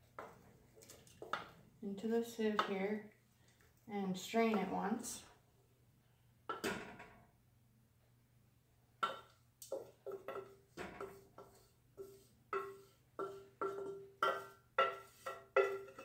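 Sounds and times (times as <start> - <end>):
utensil clanking in saucepan: 9.0 - 16.0.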